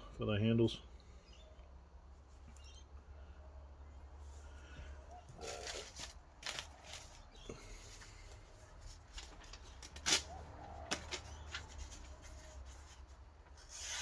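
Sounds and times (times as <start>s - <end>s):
faint paper rustling: 4.4s - 14.0s.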